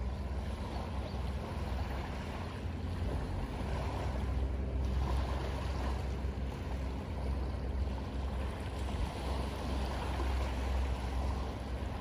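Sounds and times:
motorboat engine drone: 0.0 - 12.0
small waves washing on shore: 0.0 - 12.0.

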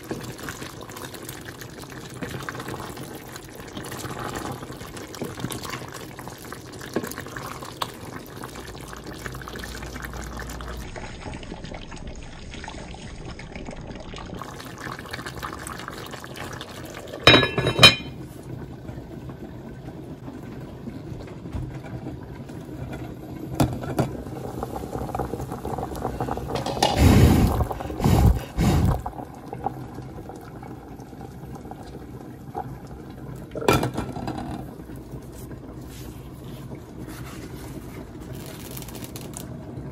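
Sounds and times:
stew bubbling: 0.0 - 18.7, 24.0 - 38.5
water boiling in a pot: 0.0 - 39.9
pot lid clinking: 17.3 - 18.2
wooden spatula stirring in a pot: 35.2 - 38.2.

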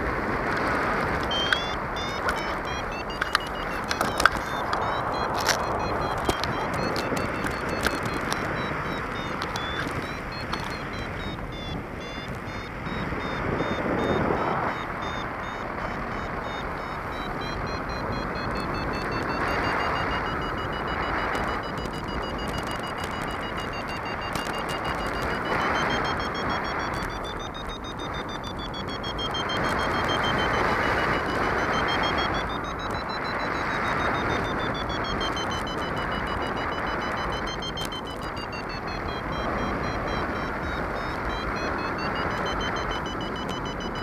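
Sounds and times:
variometer wavering high tone: 0.0 - 44.0
wind rushing over microphone: 0.0 - 44.0.

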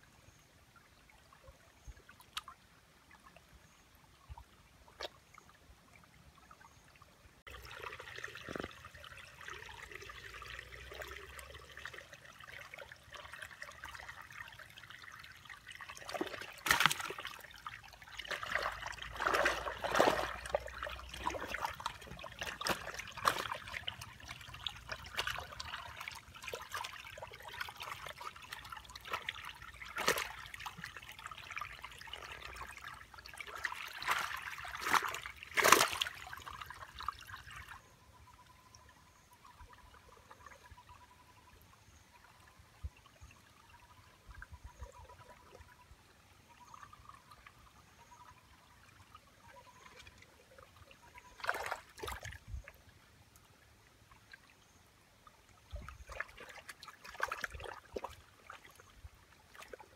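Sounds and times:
water splashes: 1.1 - 59.9
water trickling through fish trap: 7.5 - 40.9.

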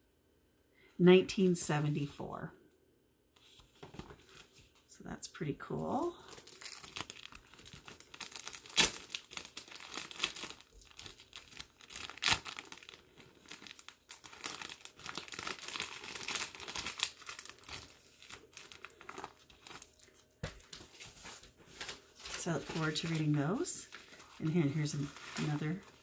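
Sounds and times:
plastic sleeve crinkling: 6.2 - 26.0.

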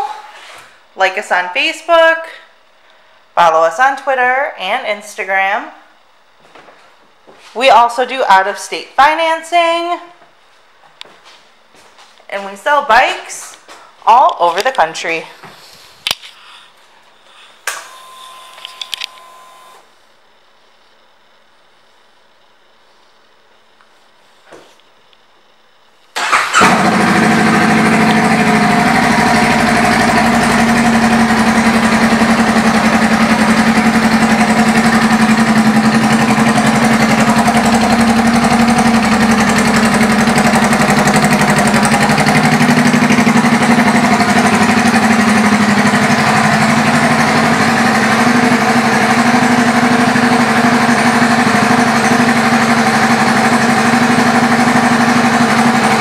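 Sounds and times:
motorcycle engine idling: 26.2 - 56.0.

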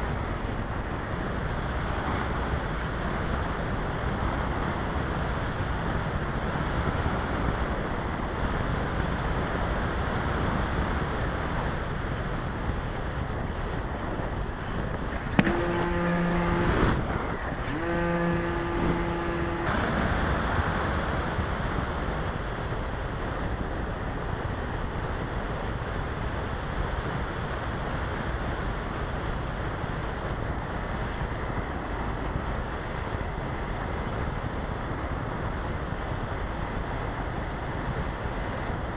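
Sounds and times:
wind rush: 0.0 - 38.9
long steady pitched tones: 12.8 - 23.0
model plane electric motor: 15.0 - 21.3.

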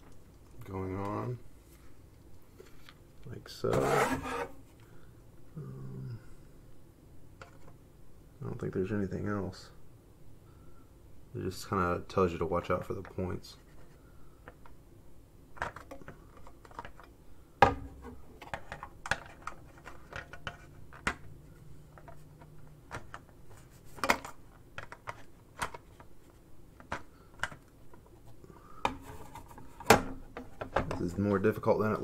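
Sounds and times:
plastic parts clicking together: 24.0 - 26.1, 26.8 - 28.0.

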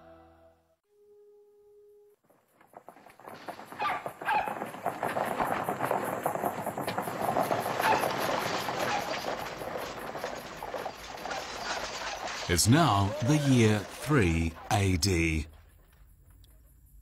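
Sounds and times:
animal calls: 11.2 - 15.0.

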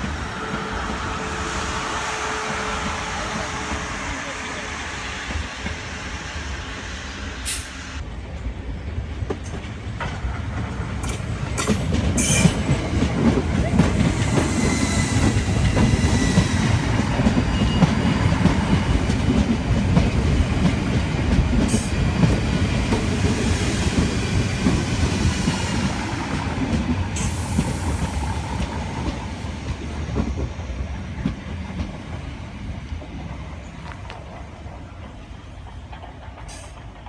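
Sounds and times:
train air hiss: 0.0 - 8.0, 13.9 - 19.1, 22.8 - 30.9, 36.4 - 37.0
train wheels rumbling on rails: 0.0 - 37.0.

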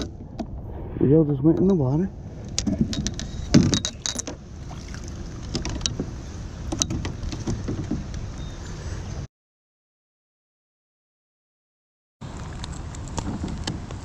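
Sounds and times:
steady low rumble: 0.0 - 7.3
gear clicking and knocking on boat: 2.6 - 4.4, 5.2 - 8.2.

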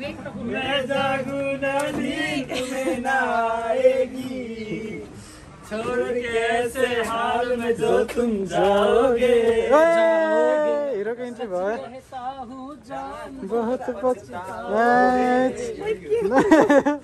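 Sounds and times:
man singing: 0.4 - 10.4.

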